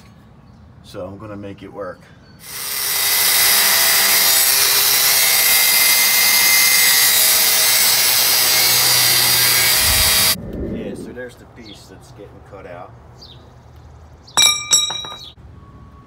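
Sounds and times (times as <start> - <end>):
angle grinder cutting steel: 2.4 - 10.4.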